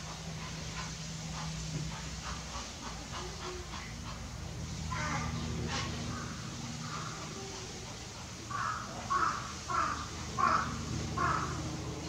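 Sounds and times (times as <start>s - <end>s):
steady low hum: 0.0s - 12.0s
bird calling: 8.5s - 12.0s.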